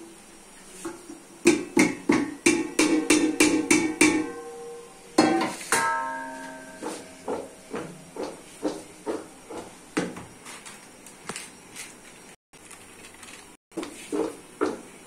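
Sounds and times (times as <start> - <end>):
steel pot clanking against bowl: 1.5 - 7.8
ringing metal clang: 2.6 - 7.6.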